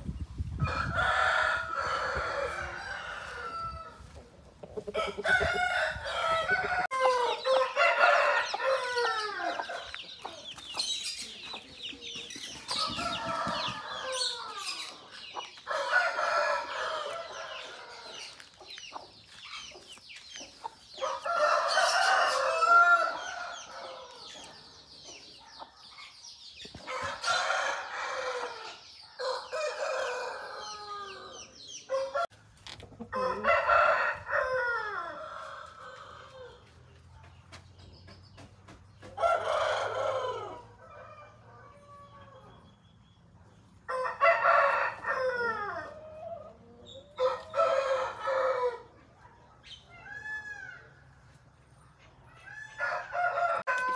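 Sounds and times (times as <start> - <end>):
chickens clucking: 0.0 - 53.9
roosters crowing: 0.6 - 4.2, 4.8 - 11.0, 12.3 - 18.4, 21.0 - 24.6, 26.8 - 32.4, 33.1 - 36.8, 39.0 - 42.6, 43.8 - 49.1, 49.9 - 51.3, 52.3 - 53.9.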